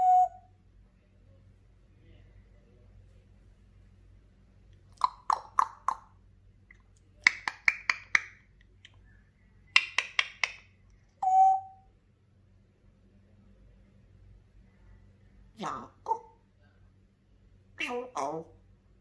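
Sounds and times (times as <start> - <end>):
parrot whistled note: 0.0 - 0.5, 11.2 - 11.8
parrot clicking: 5.0 - 6.0, 9.8 - 10.7.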